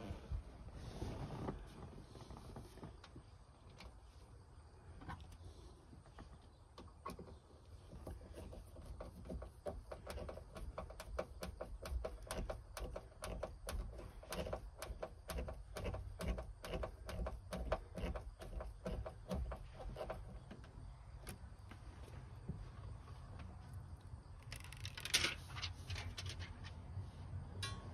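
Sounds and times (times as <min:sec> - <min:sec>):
clicks and rattles of fitting: 0:08.2 - 0:20.3, 0:24.4 - 0:26.8.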